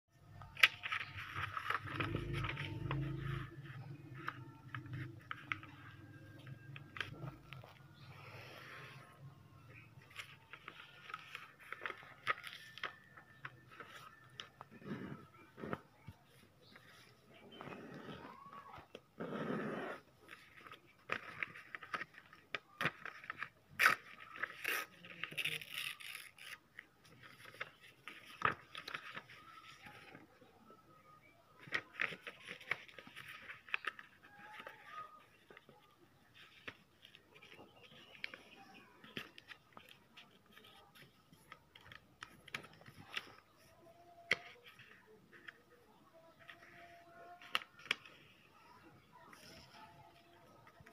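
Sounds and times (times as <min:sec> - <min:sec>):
sharp paper clicks: 0:00.4 - 0:07.8, 0:09.7 - 0:14.8, 0:20.2 - 0:30.2, 0:31.6 - 0:45.6
paper rustling and crinkling: 0:00.4 - 0:09.1, 0:09.7 - 0:19.1, 0:20.2 - 0:30.4, 0:31.6 - 0:50.9.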